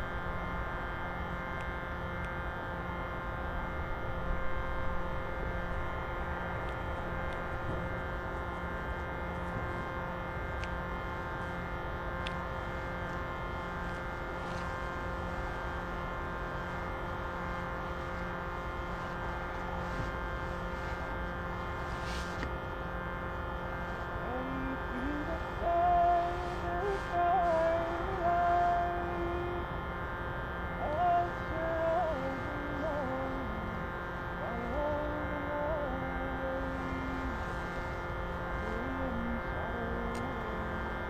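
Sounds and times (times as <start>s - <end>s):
reed instrument drone chord: 0.0s - 41.0s
person singing: 24.1s - 29.8s, 30.8s - 37.8s, 38.6s - 41.0s.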